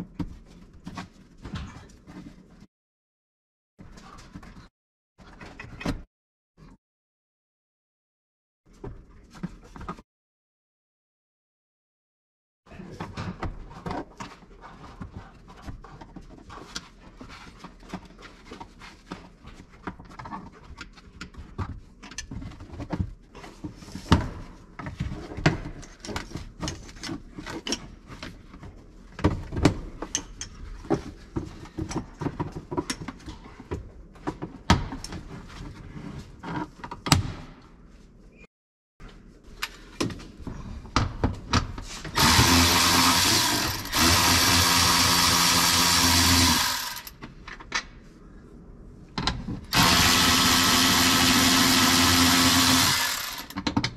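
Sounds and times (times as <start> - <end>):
power ratchet running: 42.2 - 47.1, 49.7 - 53.6.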